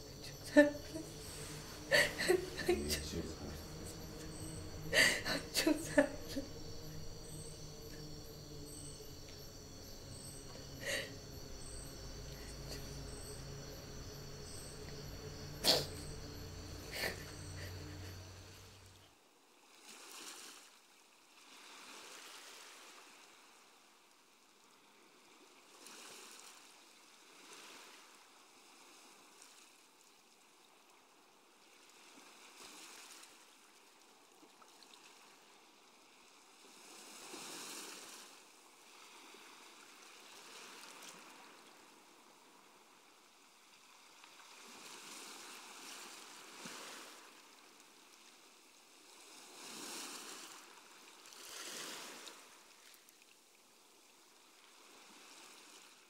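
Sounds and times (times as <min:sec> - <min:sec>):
faint sea waves: 0:00.0 - 0:23.6, 0:36.2 - 0:56.0.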